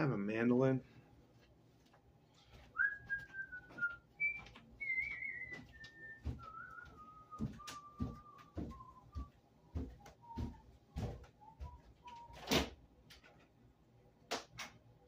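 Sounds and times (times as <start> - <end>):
person whistling a slow tune: 2.8 - 9.3, 10.0 - 12.4.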